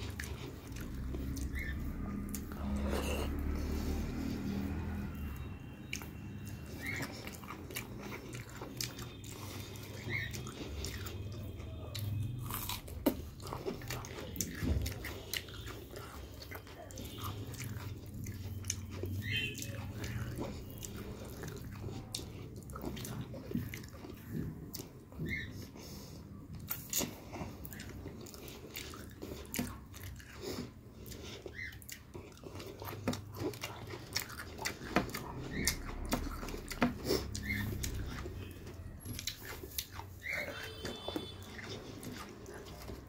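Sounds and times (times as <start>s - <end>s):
person chewing food: 0.0s - 43.0s.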